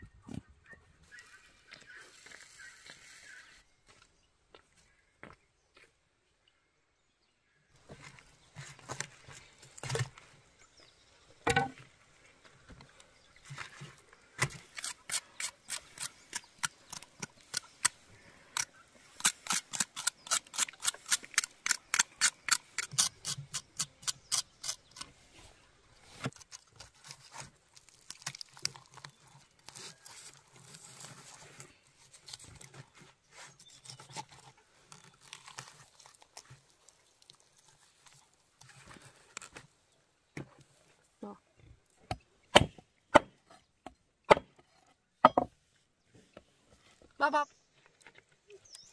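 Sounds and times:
knife crunching through chicken skin: 14.5 - 25.1, 26.3 - 31.2, 33.8 - 38.3
meat tearing and rubbing: 26.4 - 32.7, 33.7 - 39.6.

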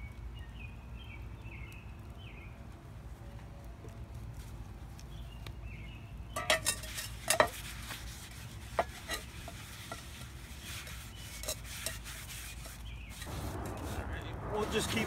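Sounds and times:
paper towel rubbing skillet: 6.5 - 13.3.

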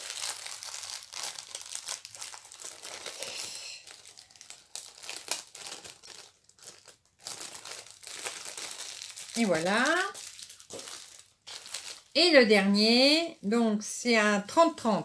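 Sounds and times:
plastic packaging crinkling: 0.0 - 12.6.

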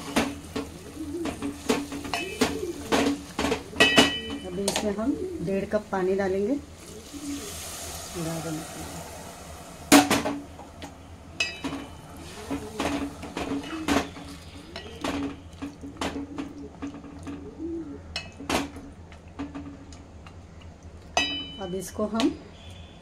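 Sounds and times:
wooden spoon stirring in metal pot: 10.2 - 17.5
spoon knocking and scraping pot: 11.4 - 16.9.

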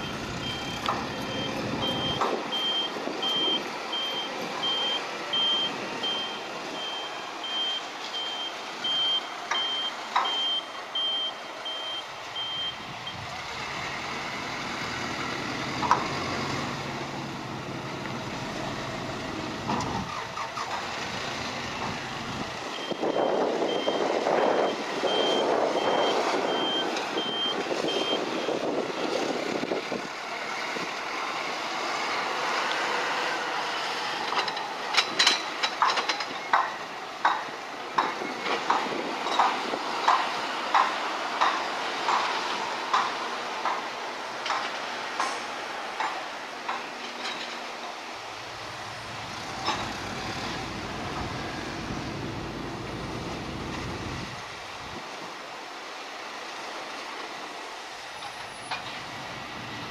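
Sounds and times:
reversing alarm beeping: 0.0 - 13.3, 22.7 - 28.6.

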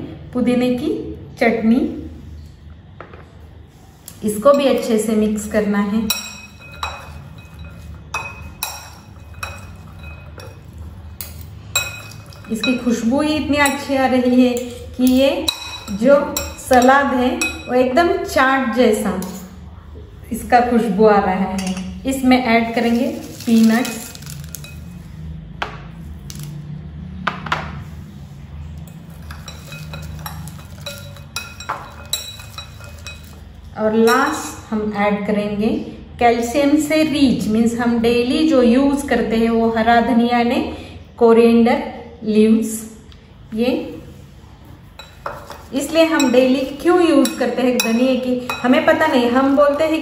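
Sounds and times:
steady low hum: 0.0 - 50.0
spoons clinking on glass bowl: 6.0 - 18.0, 21.5 - 22.0, 22.6 - 25.0, 28.8 - 34.6, 45.0 - 50.0
salad rustling: 22.5 - 25.2, 29.0 - 33.7.

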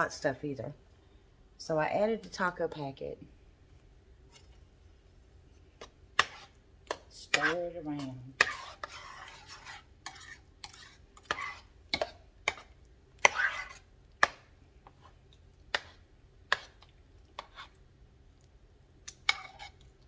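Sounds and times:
spoon scraping crock: 5.7 - 17.9, 19.0 - 20.0
metal spoon stirring thick sauce: 5.8 - 18.1, 19.0 - 20.0.

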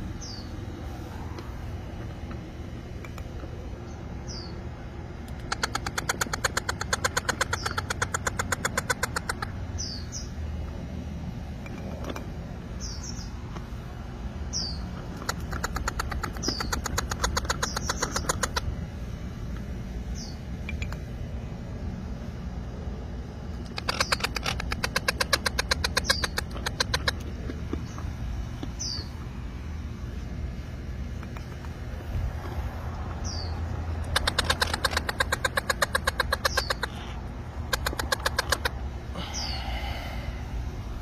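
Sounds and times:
parrot chicks chattering: 3.1 - 10.6, 14.4 - 18.8, 23.5 - 29.3, 31.2 - 40.0
high chirps: 23.6 - 28.0, 33.2 - 39.6.

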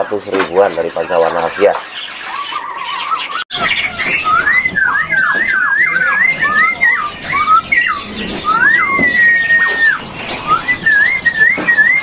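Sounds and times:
songbird whistling quick swooping notes: 3.6 - 12.0.

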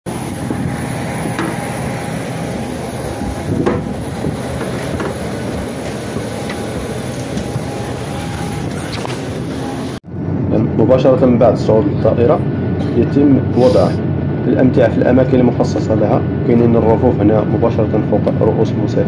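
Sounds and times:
jet airliner engine whine: 0.1 - 19.0
footsteps on metal stairs: 1.3 - 1.7, 3.6 - 7.7.

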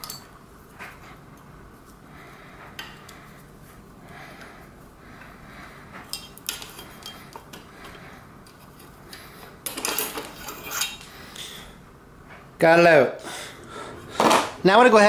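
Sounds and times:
handlebar scraping and rattling: 9.7 - 11.1.

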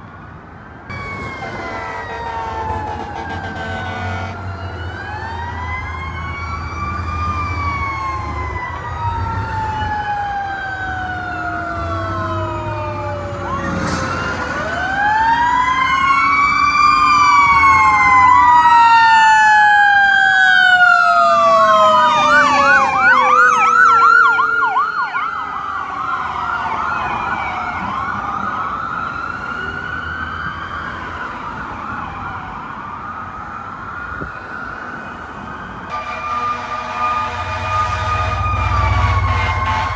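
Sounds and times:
fire engine sirens wailing: 0.0 - 39.9
siren fast yelp: 0.9 - 27.8.

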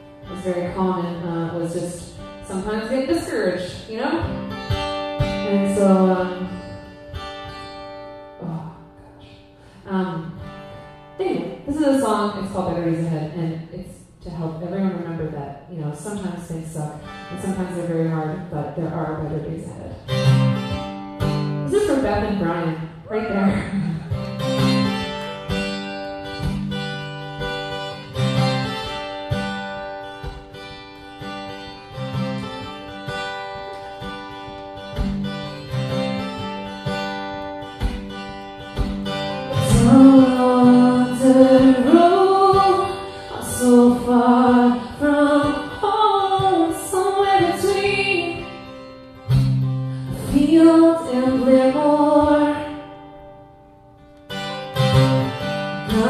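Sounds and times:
acoustic guitar strumming chords: 0.0 - 12.9, 17.0 - 56.0
woman singing: 0.2 - 4.4, 5.4 - 7.0, 8.4 - 10.4, 21.6 - 24.2, 39.5 - 48.9, 50.0 - 53.1.

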